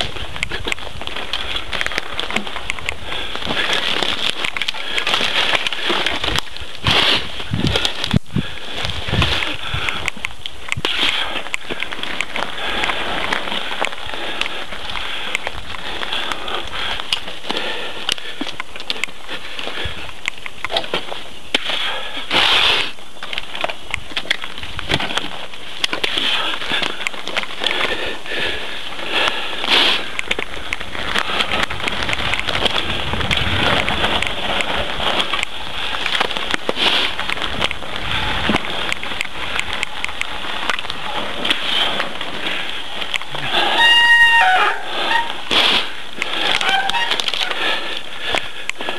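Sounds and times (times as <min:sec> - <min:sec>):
bike tyres rushing and rattling: 0:00.0 - 0:48.9
clicks and knocks over twigs: 0:00.0 - 0:48.9.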